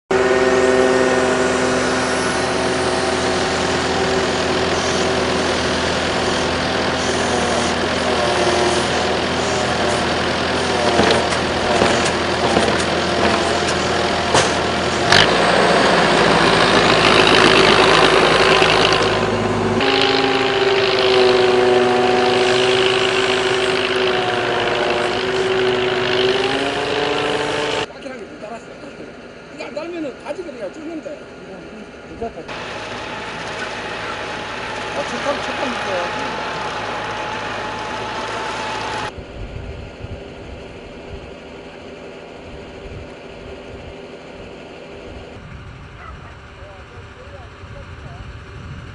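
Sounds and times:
farm machinery engines: 0.1 - 48.9.

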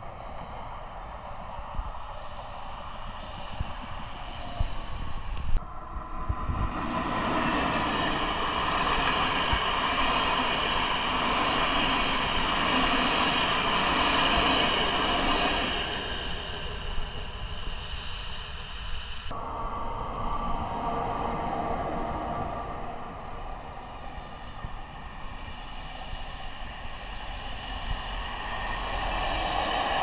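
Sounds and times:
train wheels on rails: 6.5 - 19.4.

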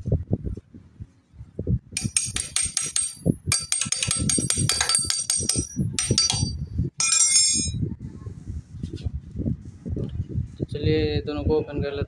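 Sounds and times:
hand tools clicking on metal: 2.0 - 7.8.

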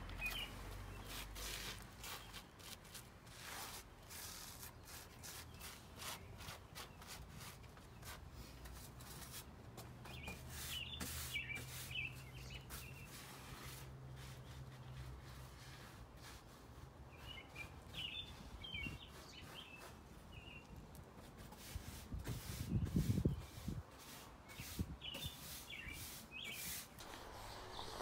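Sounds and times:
small bird chirping: 0.1 - 1.3, 10.0 - 13.2
soft rustling: 27.0 - 28.0.

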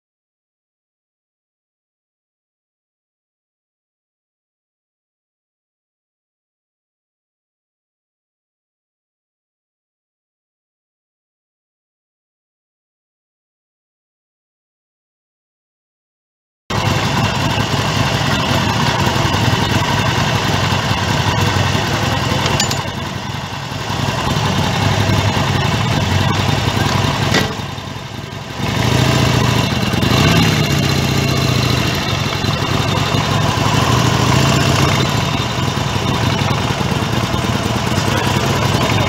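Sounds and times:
motorcycle engine revving: 16.7 - 39.0
motorcycle engines idling: 16.7 - 39.0.

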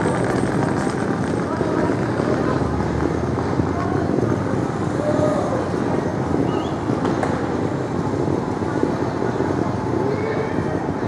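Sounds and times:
low city rumble: 0.0 - 11.0.

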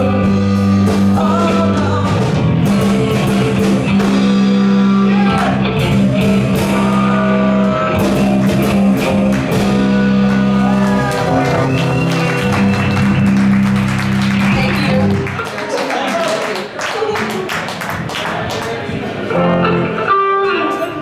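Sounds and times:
low bass notes: 0.0 - 15.4
guitar: 0.0 - 21.0
drum and cymbal hits: 0.6 - 4.8.

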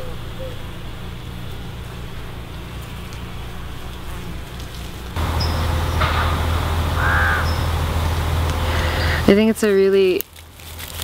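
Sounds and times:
low outdoor background hum: 0.0 - 11.0.

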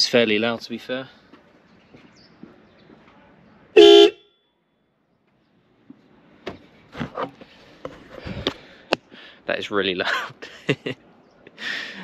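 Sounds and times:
loud car horn blast: 3.8 - 4.5.

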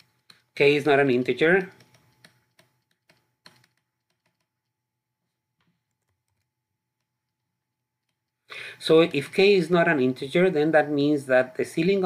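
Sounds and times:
stylus tapping on tablet: 1.6 - 4.8.

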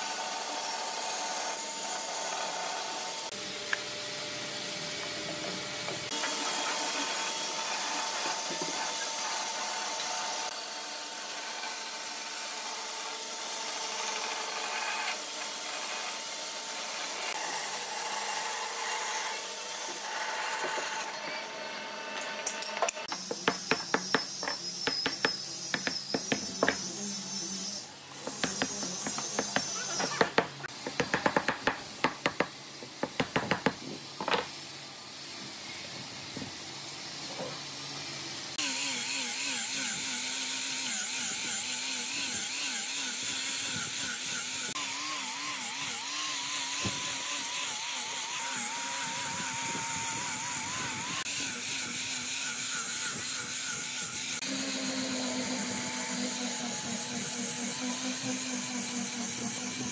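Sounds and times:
angle grinder sanding wood: 23.0 - 34.5, 38.5 - 59.9
hammer tapping on wood: 23.1 - 26.9, 28.3 - 34.4.

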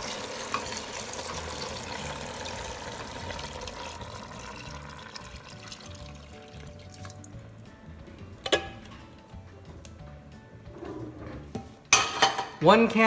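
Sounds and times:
water pouring and splashing: 0.0 - 7.4
background music: 0.0 - 13.0.

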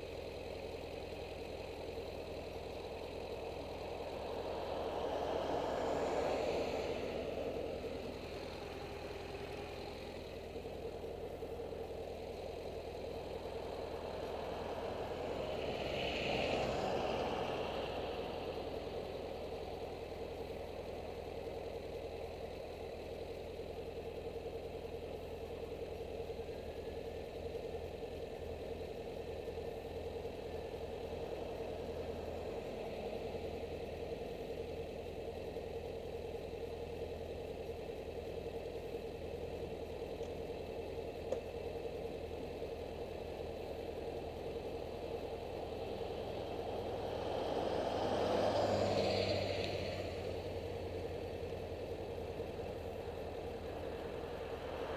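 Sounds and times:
motorcycle engine idling: 0.0 - 47.3, 49.6 - 54.9
vehicles passing: 0.0 - 54.9.

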